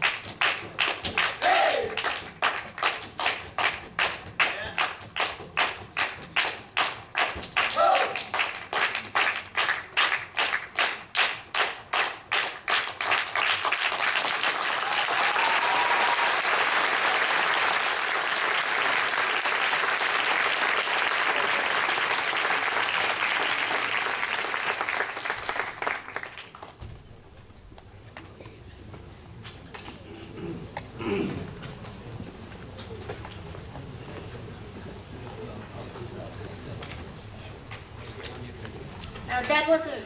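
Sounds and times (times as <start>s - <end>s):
audience applauding: 0.0s - 26.8s.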